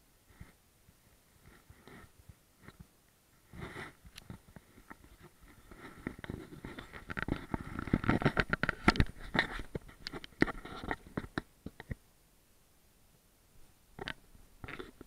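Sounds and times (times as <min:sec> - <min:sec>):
kitten scratching and tapping camera: 0:03.5 - 0:12.0, 0:14.0 - 0:15.0.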